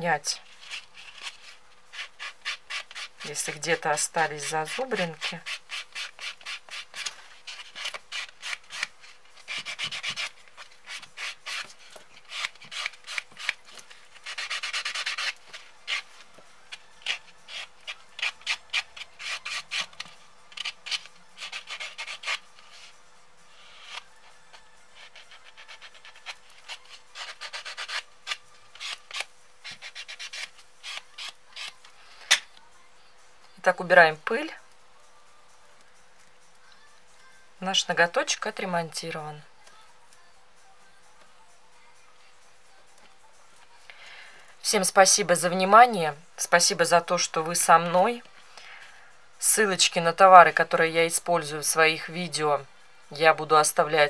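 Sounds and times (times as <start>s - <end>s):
nail buffer rubbing on fingernail: 0.4s - 31.9s.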